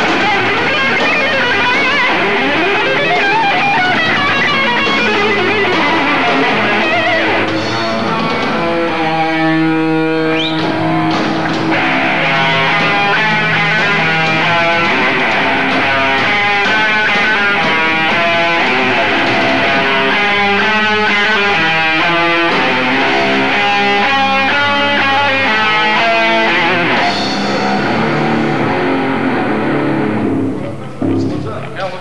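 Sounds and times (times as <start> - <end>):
death metal band playing live: 0.0 - 32.0.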